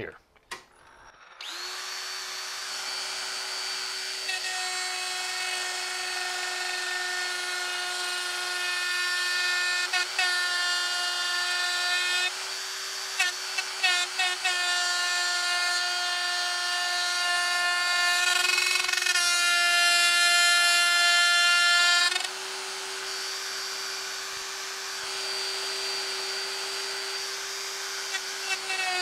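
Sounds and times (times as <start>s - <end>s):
die grinder whining: 0.6s - 29.0s.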